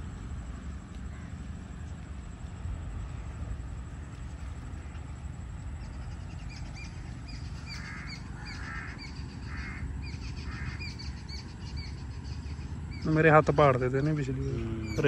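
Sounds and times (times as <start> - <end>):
small bird chirping: 5.8 - 15.0
crow cawing: 7.3 - 11.3.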